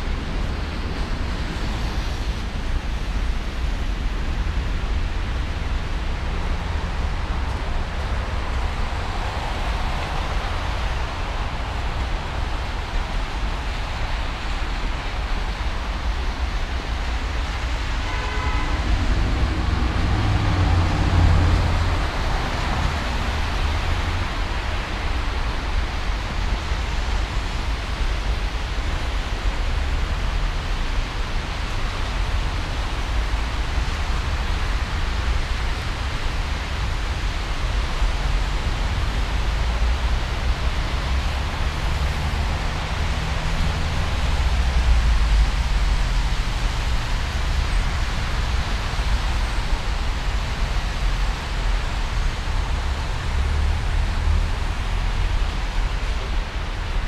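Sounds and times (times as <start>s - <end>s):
traffic rumble: 0.0s - 57.0s
heavy vehicle passing: 17.0s - 25.8s
engine whine: 17.1s - 24.5s.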